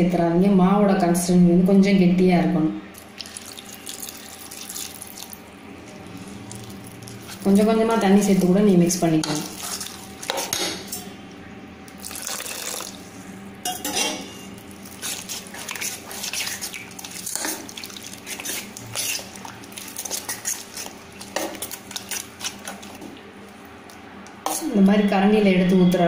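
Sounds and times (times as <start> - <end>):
water pouring: 3.0 - 5.4, 12.0 - 13.1
spoon scraping batter in metal bowl: 13.8 - 17.6, 18.2 - 23.0.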